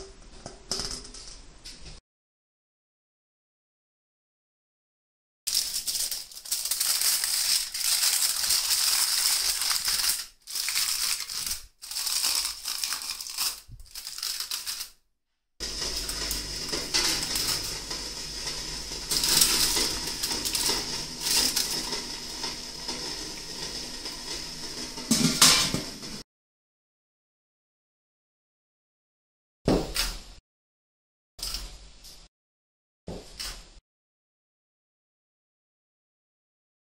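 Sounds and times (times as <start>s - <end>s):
aluminium foil crinkling: 5.5s - 15.0s, 15.6s - 25.8s.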